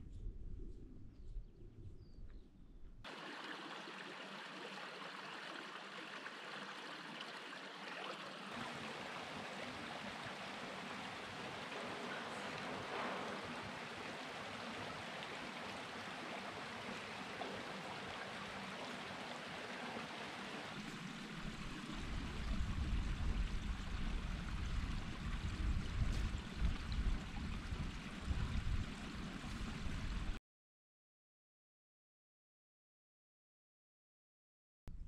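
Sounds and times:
stream rushing over rocks: 0:03.1 - 0:30.3
wind buffeting microphone: 0:21.4 - 0:30.4.

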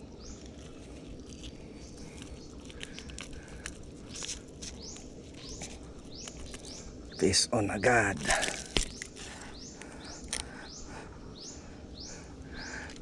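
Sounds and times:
low outdoor rumble: 0:00.0 - 0:13.0
bird chirps: 0:04.0 - 0:12.9.

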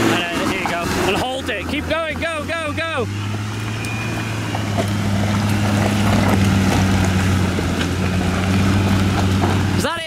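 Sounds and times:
car engine at high revs: 0:00.0 - 0:10.0
knocks from wheels and underside: 0:04.4 - 0:09.8.

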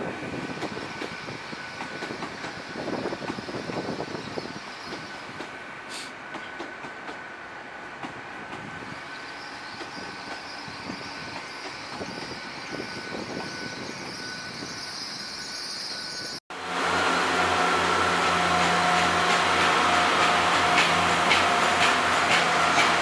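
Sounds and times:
train wheels clicking over rail joints: 0:00.4 - 0:04.1, 0:04.8 - 0:07.2, 0:09.5 - 0:13.6, 0:18.2 - 0:23.0
high hiss: 0:05.9 - 0:06.2.

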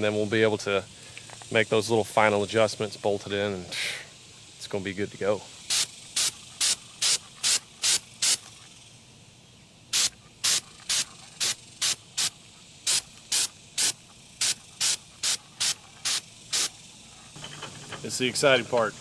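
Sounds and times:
aerosol can spraying in bursts: 0:05.7 - 0:08.8, 0:09.9 - 0:17.3.

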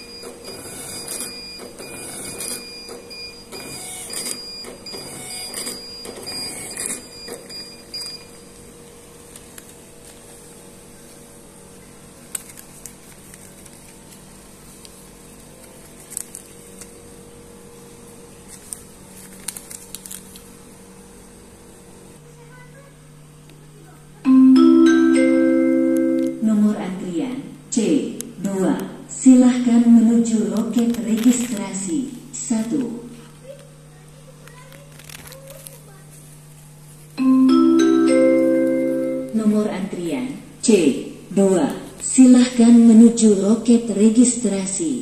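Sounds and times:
thermal ticket printer whirring: 0:00.0 - 0:08.6.

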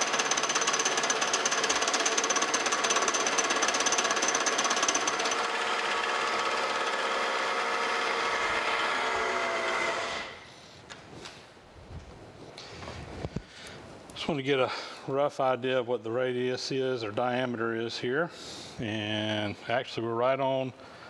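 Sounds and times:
boring head knocking rapidly: 0:00.0 - 0:07.1
milling machine running: 0:00.0 - 0:10.4.

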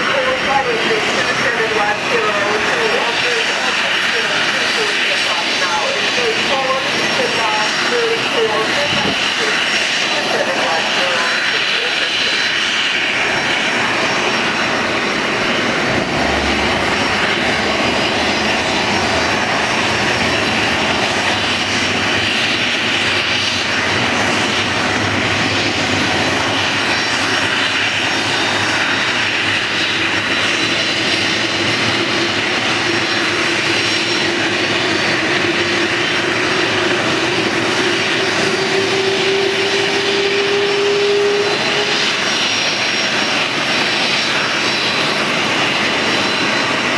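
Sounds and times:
jet engines rushing: 0:00.0 - 0:46.9
rising engine whine: 0:00.0 - 0:46.9.

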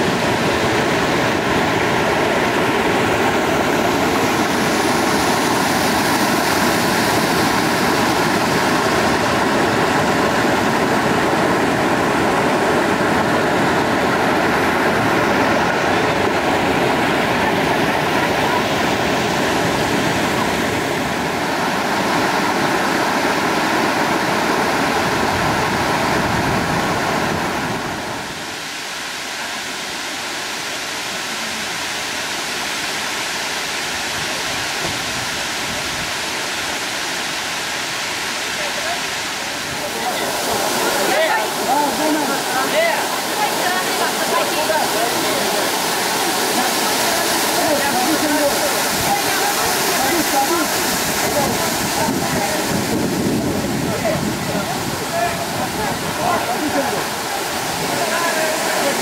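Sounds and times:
river water rushing over rocks: 0:00.0 - 0:59.0.

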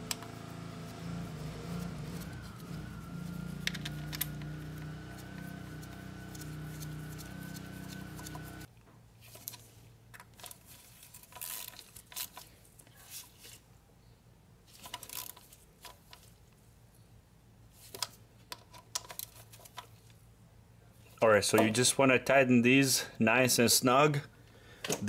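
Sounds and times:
steady machine hum: 0:00.0 - 0:08.7.

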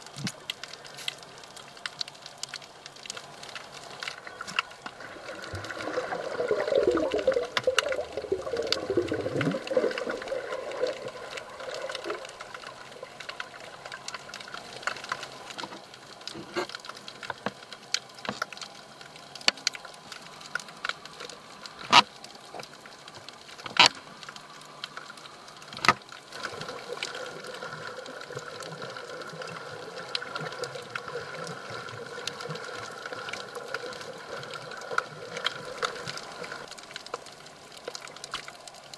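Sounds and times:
sharp clicks and crackles: 0:00.0 - 0:38.9
muffled underwater rush: 0:04.1 - 0:15.5
underwater hiss: 0:05.0 - 0:13.0.

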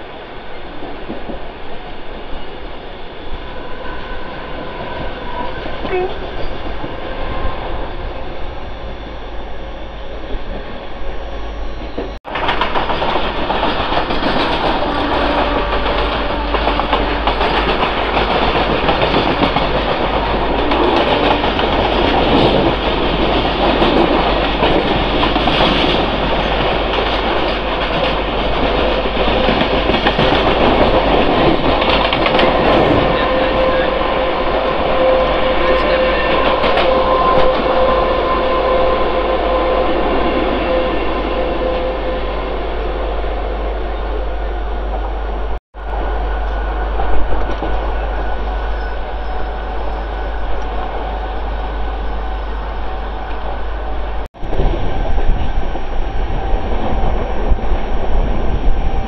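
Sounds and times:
train wheels rushing on rails: 0:11.8 - 0:42.9, 0:45.7 - 0:59.0.

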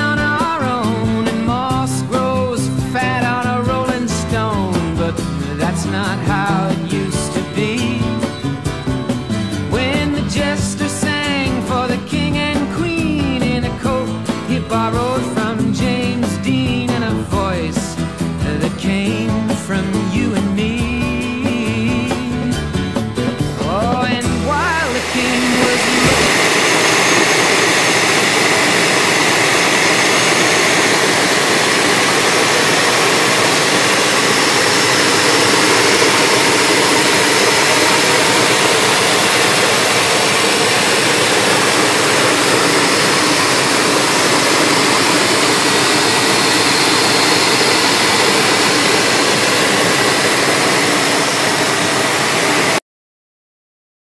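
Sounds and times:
car engine idling: 0:23.8 - 0:52.7.

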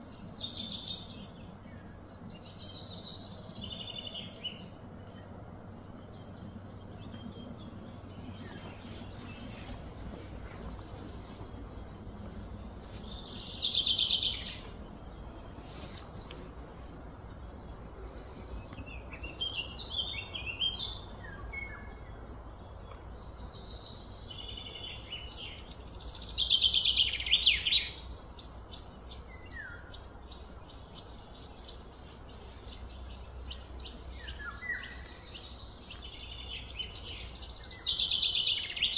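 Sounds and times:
birds chirping: 0:00.0 - 0:38.9
outdoor background hiss: 0:00.0 - 0:38.9.

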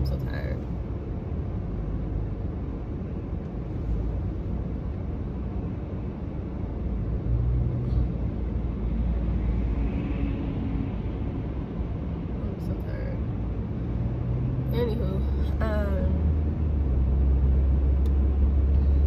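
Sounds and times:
car cabin road noise rumble: 0:00.0 - 0:19.0.

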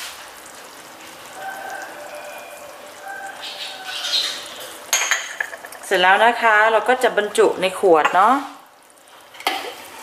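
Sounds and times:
sauce bubbling and popping: 0:00.0 - 0:06.0, 0:08.1 - 0:10.0.

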